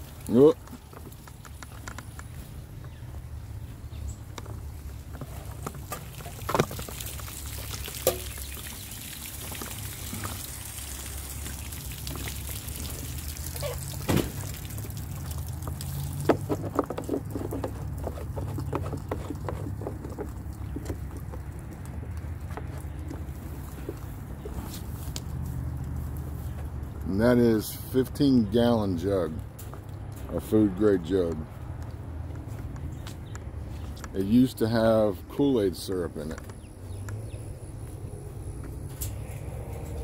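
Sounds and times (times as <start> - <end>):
water pouring into plastic jug: 5.4 - 25.5.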